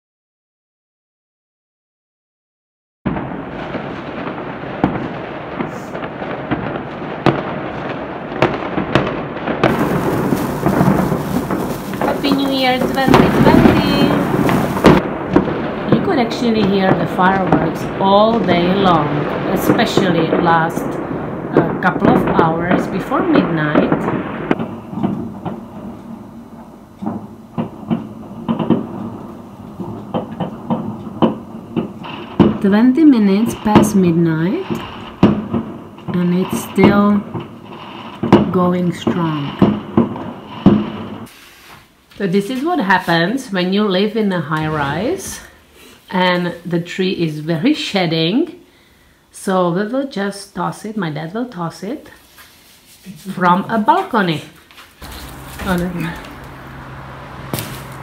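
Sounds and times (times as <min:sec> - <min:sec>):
sharp firework bangs: 0:03.1 - 0:41.4, 0:54.9 - 0:58.0
distant fireworks crackling and rumbling: 0:03.1 - 0:48.6, 0:49.2 - 0:58.0
trams rumbling: 0:09.7 - 0:15.0, 0:55.0 - 0:58.0.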